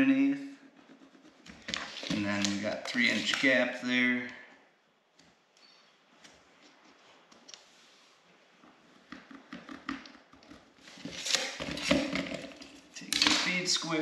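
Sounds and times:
tape measure being moved: 1.7 - 3.6.

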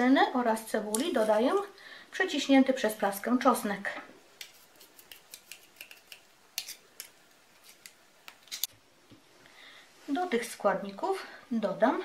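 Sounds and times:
knife scraping metal garlic press: 5.0 - 7.1.

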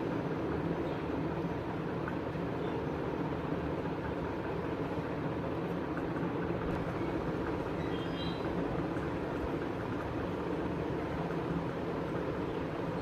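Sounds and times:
steady low background noise: 0.0 - 13.0.

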